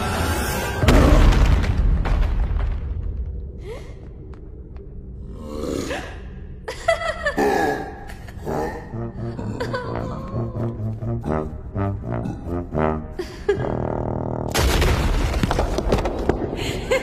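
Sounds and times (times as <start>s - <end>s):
brass-like music: 9.0s - 14.5s.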